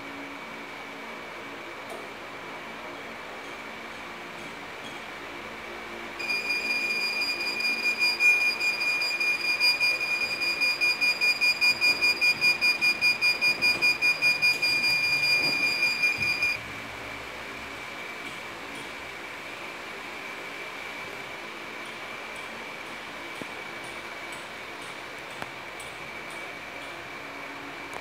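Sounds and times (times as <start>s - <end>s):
electronic timer beeping: 6.2s - 16.6s.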